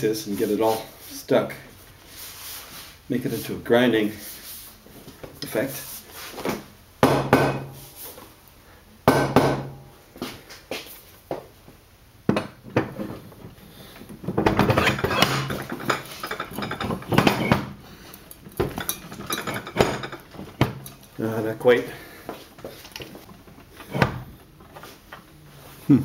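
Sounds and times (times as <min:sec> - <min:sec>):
sharp metal knocks: 0:07.0 - 0:07.7
metal clinking and scraping: 0:12.8 - 0:21.9.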